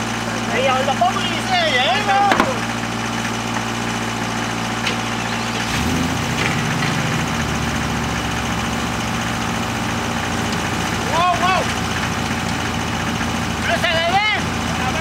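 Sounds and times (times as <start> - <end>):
skidder engine running: 0.0 - 15.0.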